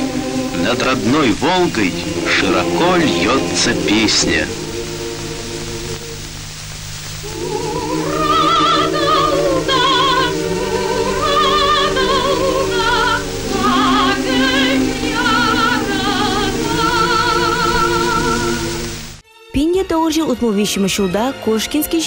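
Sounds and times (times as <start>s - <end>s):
orchestral accompaniment: 0.0s - 6.3s, 7.2s - 19.6s
high voice singing with vibrato: 7.2s - 18.9s.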